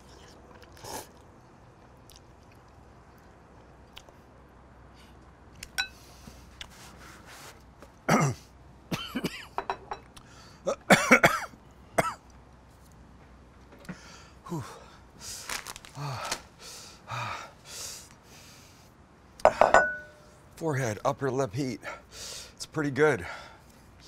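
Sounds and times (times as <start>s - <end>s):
man coughing and clearing throat: 8.1s - 9.7s, 10.7s - 12.2s.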